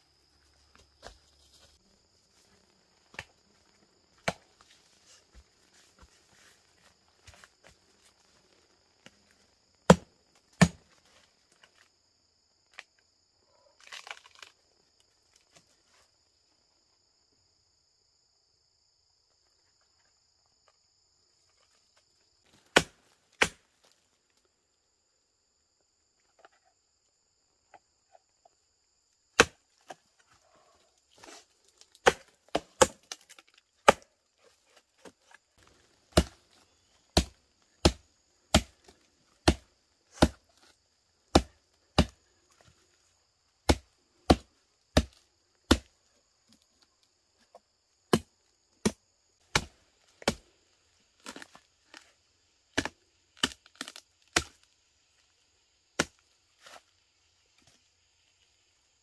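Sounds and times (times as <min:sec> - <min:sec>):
machete chopping into wood: 0:04.2 - 0:04.4, 0:09.9 - 0:10.8, 0:22.5 - 0:23.7, 0:29.4 - 0:29.6, 0:31.2 - 0:34.1, 0:36.1 - 0:36.4, 0:37.1 - 0:38.8, 0:39.4 - 0:40.4, 0:41.3 - 0:42.2, 0:43.7 - 0:45.9, 0:48.1 - 0:50.4, 0:52.7 - 0:54.6, 0:56.0 - 0:56.8.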